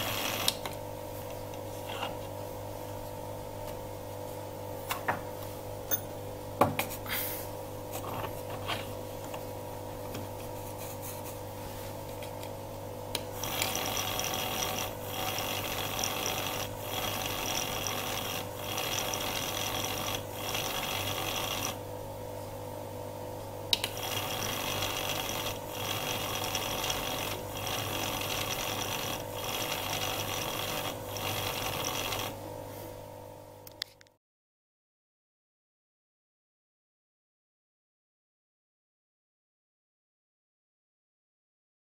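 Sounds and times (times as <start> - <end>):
machine humming: 0.0 - 1.2, 12.7 - 33.6.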